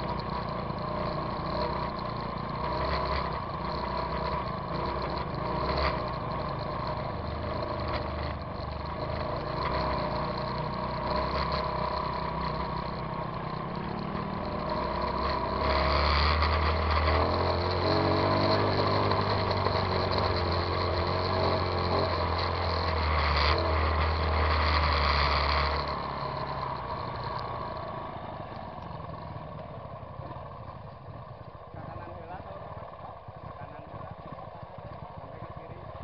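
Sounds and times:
motorcycle engine running: 0:00.0 - 0:36.0.

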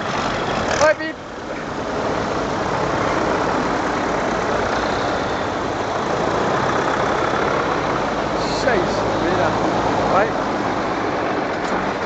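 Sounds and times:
tractor engines driving past: 0:00.0 - 0:12.0.

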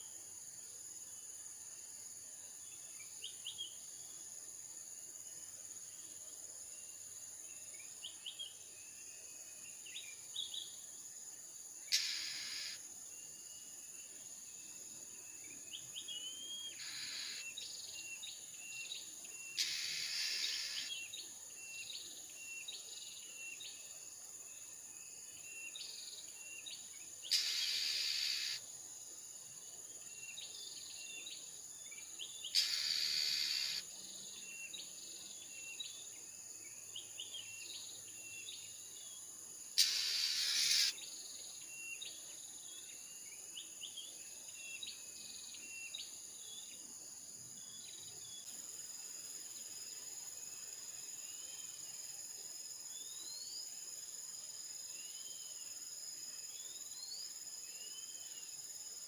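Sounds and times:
insects droning: 0:00.0 - 0:59.0
bird chirping: 0:11.9 - 0:23.9, 0:24.5 - 0:28.6, 0:30.0 - 0:46.9
harsh hissing bursts: 0:19.6 - 0:20.9, 0:27.3 - 0:28.6, 0:32.6 - 0:33.8, 0:39.8 - 0:40.9.

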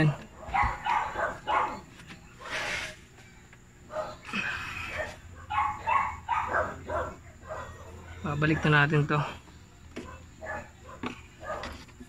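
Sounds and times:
dog barking: 0:00.4 - 0:02.6, 0:03.9 - 0:04.2, 0:04.9 - 0:08.9, 0:10.0 - 0:11.8.

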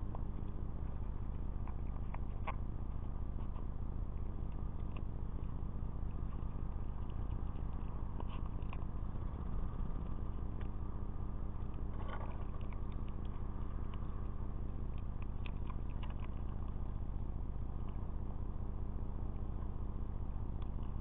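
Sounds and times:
animal chewing in seed tray: 0:00.0 - 0:21.0
low hum of recording device: 0:00.0 - 0:21.0.

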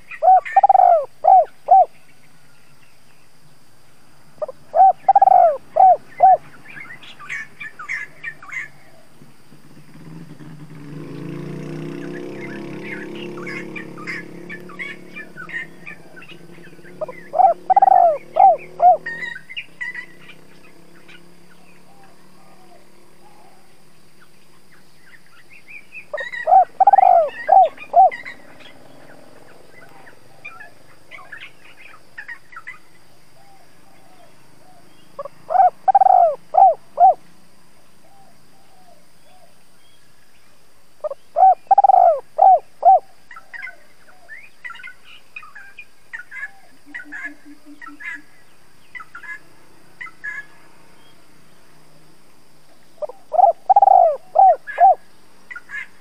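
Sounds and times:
dove cooing: 0:00.0 - 0:02.0, 0:04.4 - 0:09.2, 0:11.1 - 0:23.8, 0:26.1 - 0:37.2, 0:41.0 - 0:44.9, 0:46.1 - 0:48.4, 0:53.0 - 0:56.0.

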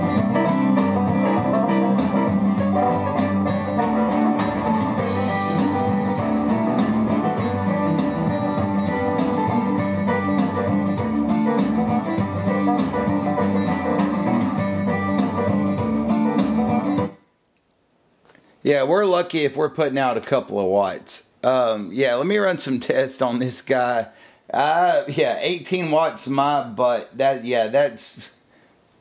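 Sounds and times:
guitar music through a speaker: 0:00.0 - 0:17.2.

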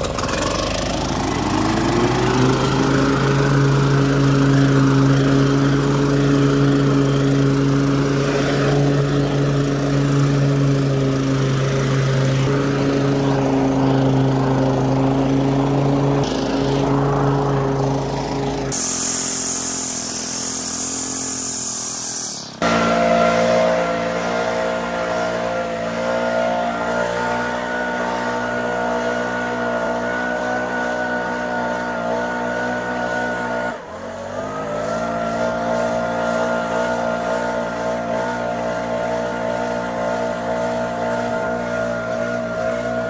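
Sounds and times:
leaf blower engine drone: 0:00.0 - 0:43.0
air rushing from tube: 0:18.0 - 0:24.4.

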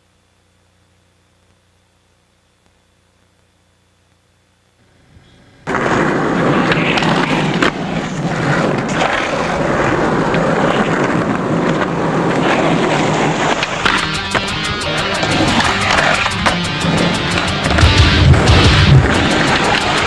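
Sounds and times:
skateboard wheels rolling on concrete: 0:05.0 - 0:20.0
skateboard clacks: 0:05.6 - 0:20.0.

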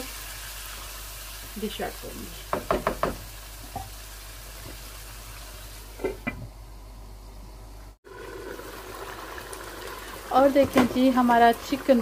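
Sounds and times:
knock: 0:02.5 - 0:03.2
curry bubbling and sizzling: 0:08.0 - 0:12.0.

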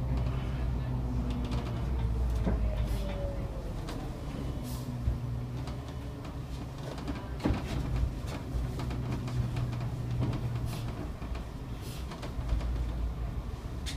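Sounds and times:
bus engine droning: 0:00.0 - 0:13.9
rattles and knocks: 0:05.1 - 0:13.2.

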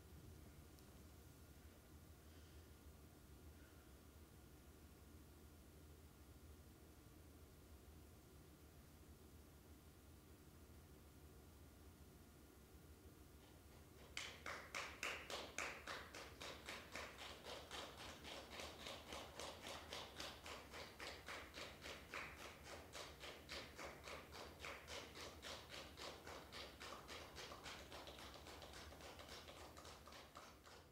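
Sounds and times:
sharp rhythmic clicks: 0:13.4 - 0:30.9.

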